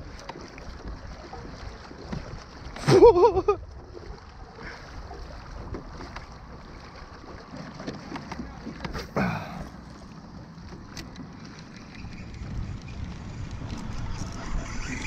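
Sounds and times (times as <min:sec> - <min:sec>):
water slapping plastic hull: 0:00.0 - 0:15.0
wind on microphone: 0:11.9 - 0:15.0.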